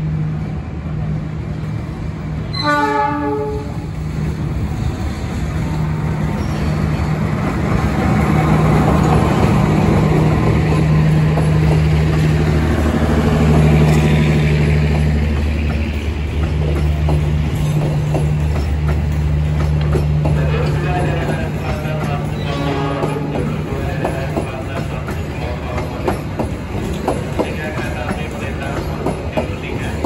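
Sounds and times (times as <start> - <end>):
train coaches rolling on track: 0.0 - 30.0
locomotive horn blasts: 2.5 - 3.9, 22.5 - 23.3.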